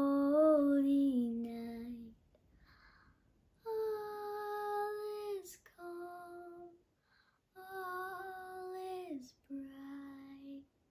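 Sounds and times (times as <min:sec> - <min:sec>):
girl singing unaccompanied: 0:00.0 - 0:02.2, 0:03.6 - 0:06.8, 0:07.5 - 0:10.8.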